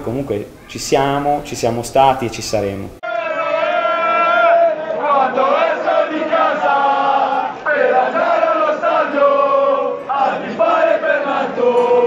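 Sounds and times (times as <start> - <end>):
crowd chanting in unison: 3.0 - 12.0.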